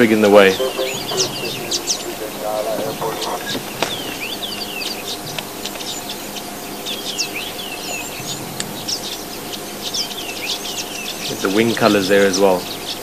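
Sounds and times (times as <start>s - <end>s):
faint low hum: 0.0s - 5.0s
birds chirping and twittering: 0.5s - 13.0s.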